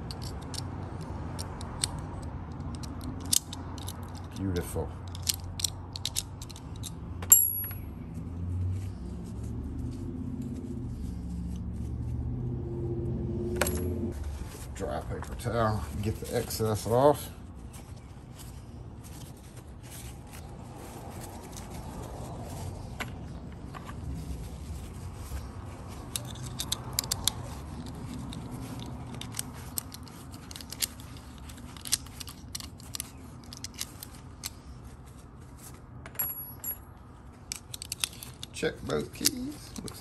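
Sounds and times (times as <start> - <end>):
lock clicks and scrapes: 0.0 - 7.0, 25.4 - 34.8, 37.4 - 40.0.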